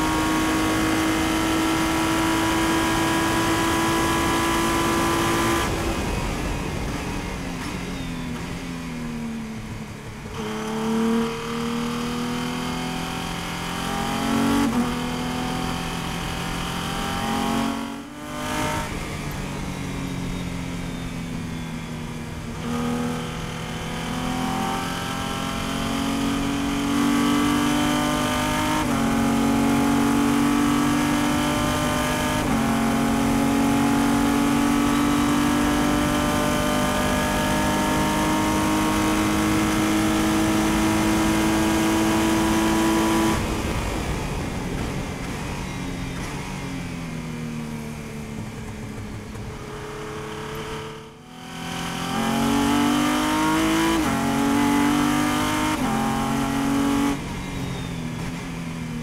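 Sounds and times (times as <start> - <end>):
race car engine accelerating: 0.0 - 6.2, 22.5 - 44.1, 48.5 - 58.4.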